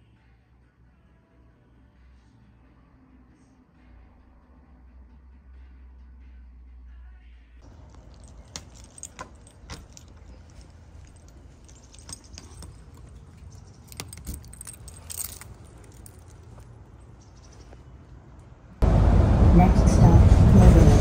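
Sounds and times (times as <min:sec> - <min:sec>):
keys jangling: 0:07.6 - 0:17.3.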